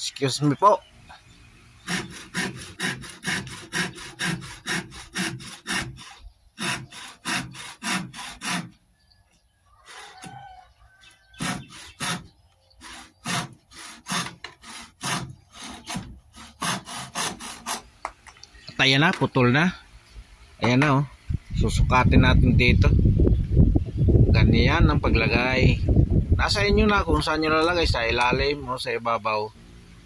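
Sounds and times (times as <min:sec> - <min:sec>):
hand saw cutting wood: 0:01.8 - 0:08.8, 0:11.3 - 0:17.9.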